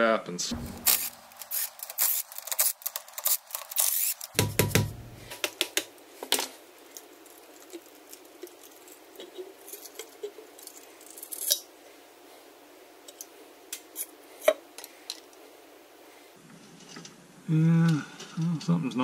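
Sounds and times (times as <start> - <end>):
screwdriver scraping metal: 0.6 - 4.3.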